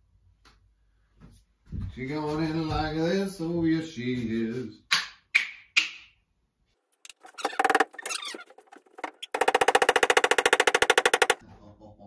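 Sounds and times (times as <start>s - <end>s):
rapid rattle of knocks: 7.1s - 11.4s.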